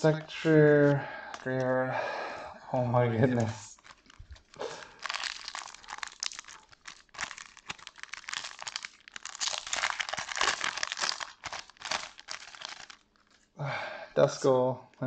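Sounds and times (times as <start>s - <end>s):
plastic foil wrapper crinkling: 3.3s - 13.5s.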